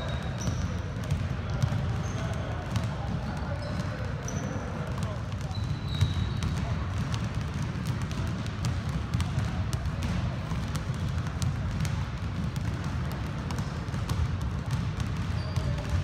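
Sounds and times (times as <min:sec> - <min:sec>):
basketballs bouncing on hardwood: 0:00.0 - 0:16.0.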